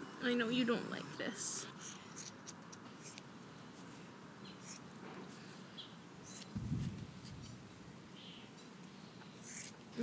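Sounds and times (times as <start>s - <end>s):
scissors snipping fur: 1.8s - 3.2s, 6.3s - 6.5s.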